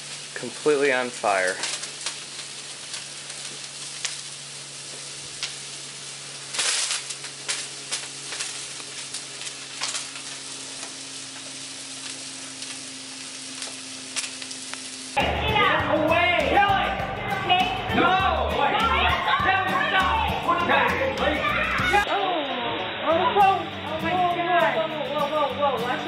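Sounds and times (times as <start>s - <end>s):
crackling flare-up: 0.0s - 15.3s
gas grill flames sizzling: 0.0s - 26.0s.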